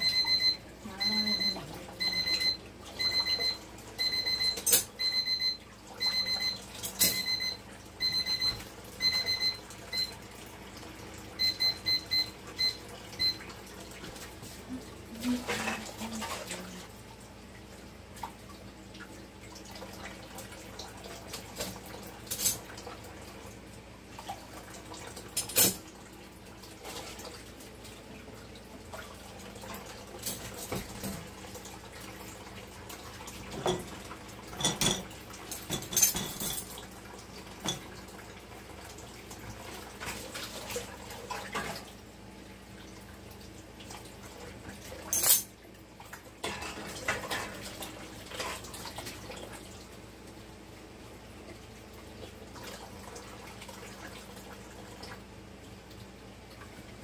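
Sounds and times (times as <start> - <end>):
water running at sink: 0.0 - 57.0
dishes and cutlery clattering: 33.5 - 36.8, 45.0 - 45.5, 46.4 - 47.6.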